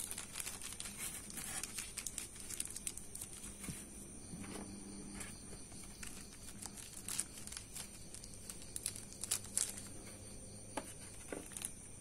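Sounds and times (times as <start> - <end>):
plastic bag crinkling: 0.0 - 3.8, 5.7 - 10.1, 10.9 - 12.0.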